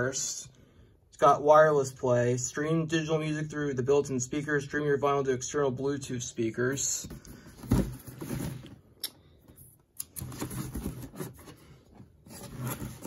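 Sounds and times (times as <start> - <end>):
thump on cardboard box: 7.6 - 8.6.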